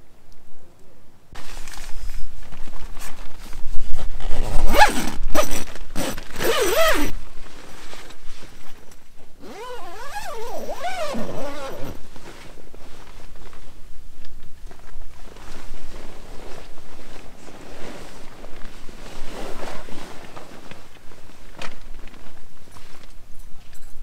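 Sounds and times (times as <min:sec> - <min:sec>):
tent zipper being pulled: 0:03.8 - 0:07.2, 0:09.4 - 0:12.6, 0:18.9 - 0:20.6.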